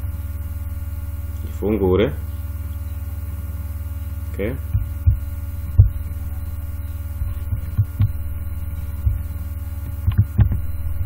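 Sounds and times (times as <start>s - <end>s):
low electrical hum: 0.0s - 11.0s
short clicks and thumps: 4.7s - 6.2s, 7.2s - 8.2s, 8.8s - 10.7s.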